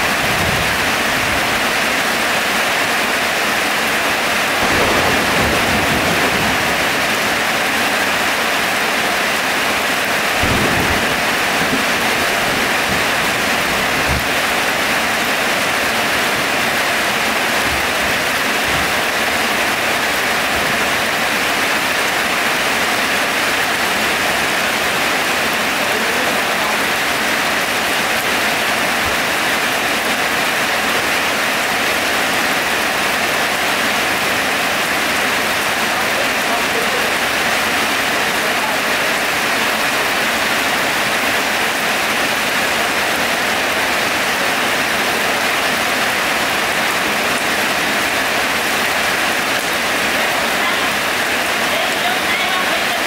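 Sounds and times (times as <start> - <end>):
heavy rain falling: 0.0 - 53.0
low rumbles: 4.4 - 8.3, 10.1 - 21.2.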